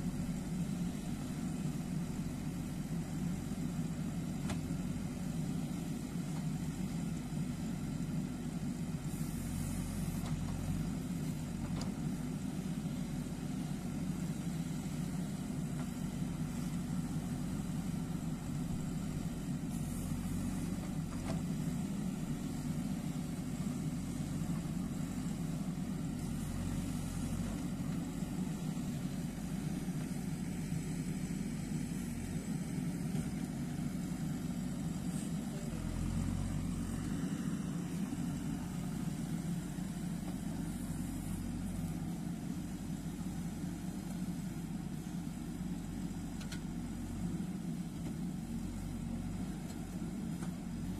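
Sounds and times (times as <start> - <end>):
diesel engine running: 0.0 - 50.9
backhoe digging soil: 9.0 - 45.2.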